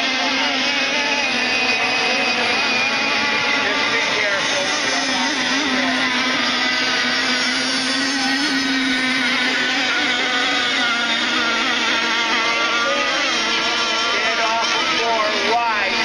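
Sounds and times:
rc boat motors buzzing: 0.0s - 16.0s.

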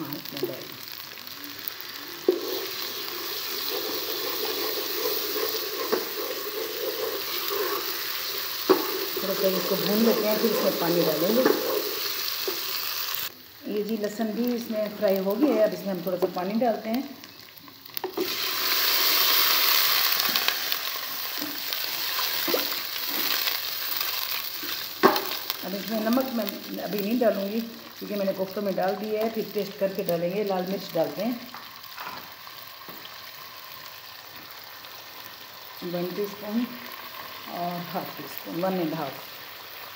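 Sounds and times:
garlic sizzling in hot fat: 0.0s - 39.9s
spoon stirring in pot: 2.2s - 9.2s.

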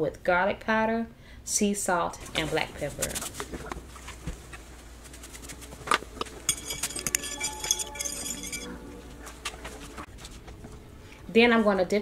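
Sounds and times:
fork clinking against ceramic bowl: 6.5s - 8.8s.

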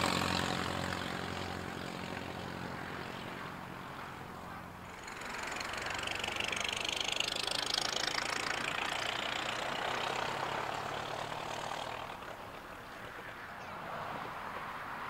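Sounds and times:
car engine driving past: 0.0s - 15.0s
tyre and road noise: 0.0s - 15.0s.

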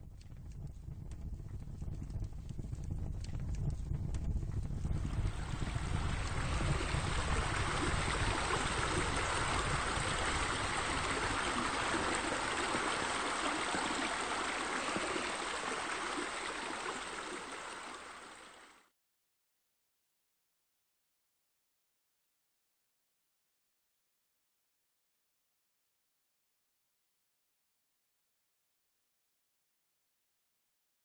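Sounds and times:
running water rushing: 4.9s - 18.9s.

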